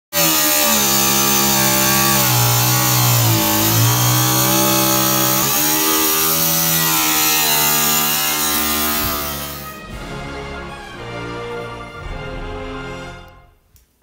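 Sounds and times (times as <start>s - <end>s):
angle grinder cutting steel: 0.1s - 9.8s.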